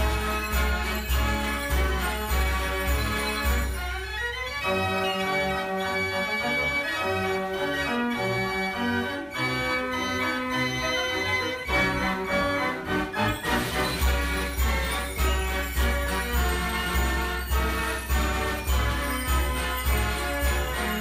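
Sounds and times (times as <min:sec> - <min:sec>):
fair organ playing a tune: 0:00.0 - 0:21.0.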